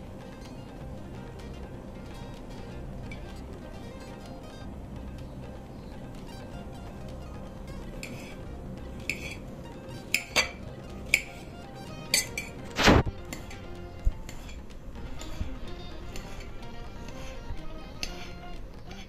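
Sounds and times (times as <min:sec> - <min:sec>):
background music: 0:00.0 - 0:19.0
knife clicking against ceramic plate: 0:08.0 - 0:08.4, 0:09.0 - 0:09.4, 0:10.1 - 0:11.4, 0:18.0 - 0:18.3.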